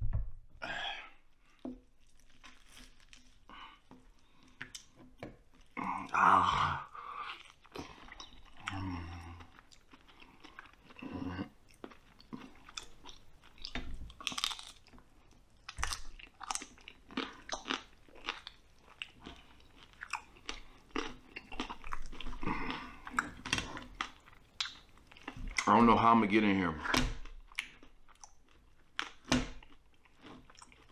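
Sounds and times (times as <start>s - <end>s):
person chewing and tearing meat: 1.2s - 25.7s, 27.2s - 30.9s.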